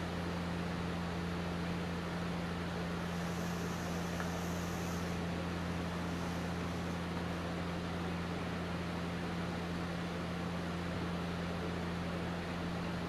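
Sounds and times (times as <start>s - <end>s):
machine hum: 0.0s - 13.0s
even hiss: 2.8s - 7.6s.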